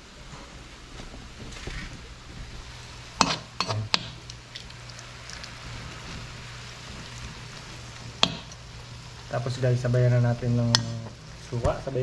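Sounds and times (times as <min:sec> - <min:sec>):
food sizzling in a wok: 0:02.4 - 0:12.0
metal spatula scraping a wok: 0:03.2 - 0:04.0.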